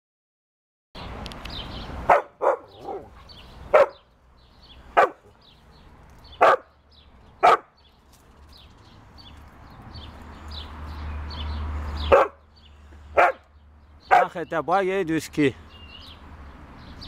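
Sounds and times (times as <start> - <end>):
dog barking: 2.1 - 4.0, 5.0 - 5.3, 6.4 - 6.7, 7.4 - 7.7, 12.1 - 12.4, 13.2 - 13.4, 14.1 - 14.4.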